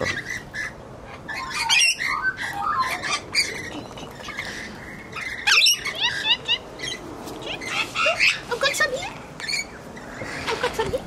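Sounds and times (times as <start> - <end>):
lorikeet squawking: 0.0 - 10.9.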